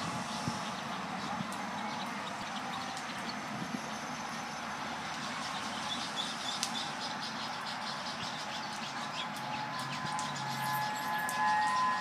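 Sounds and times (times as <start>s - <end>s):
civil defense siren: 0.0s - 6.7s, 8.4s - 12.0s
passing road traffic: 0.0s - 12.0s
birds chirping: 5.1s - 12.0s.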